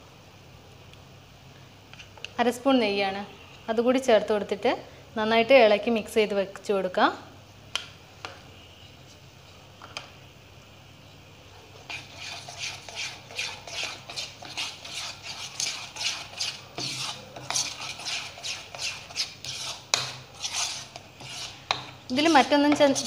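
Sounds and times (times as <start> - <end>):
metal spoon stirring batter in bowl: 11.8 - 23.0.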